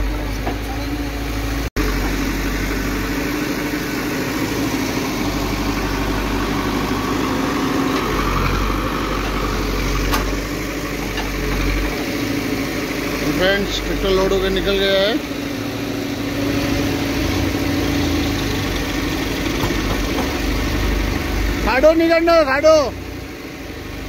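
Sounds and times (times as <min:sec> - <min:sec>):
diesel engine running: 0:00.0 - 0:24.0
backhoe digging soil: 0:02.1 - 0:14.4.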